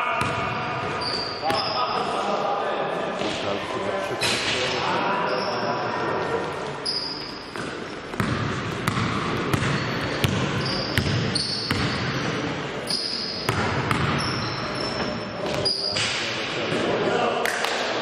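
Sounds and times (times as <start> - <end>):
players' voices echoing: 0.0 - 18.0
basketball bouncing on court floor: 0.2 - 0.6, 7.5 - 12.1, 13.5 - 14.4
sneakers squeaking on floor: 0.2 - 2.1, 4.2 - 16.2.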